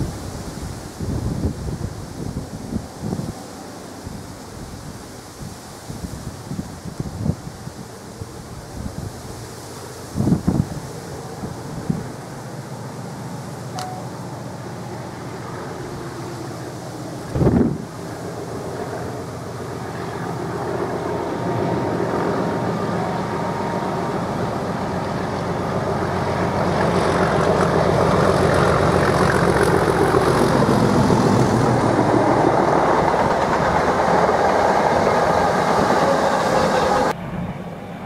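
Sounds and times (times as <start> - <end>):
diesel locomotive engine passing: 7.9 - 38.0
train wheels rolling: 21.0 - 37.2.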